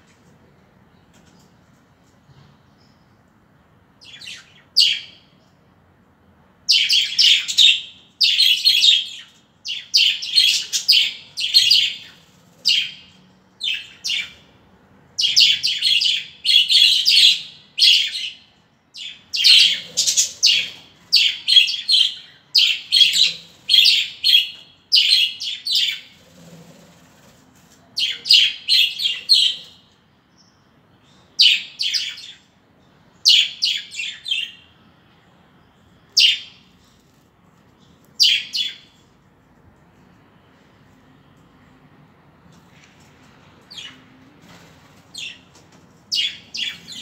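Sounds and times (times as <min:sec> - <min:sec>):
budgerigars chattering: 0:19.4 - 0:26.1.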